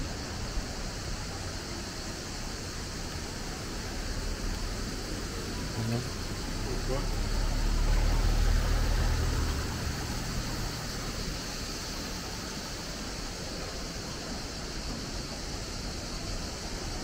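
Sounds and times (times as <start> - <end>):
river rushing: 0.0 - 17.0
car engine passing by: 3.9 - 13.0.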